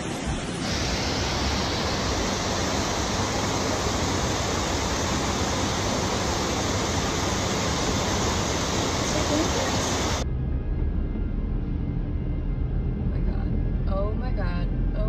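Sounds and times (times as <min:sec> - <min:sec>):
floodwater rushing: 0:00.0 - 0:10.2
heavy rain on street: 0:00.0 - 0:10.2.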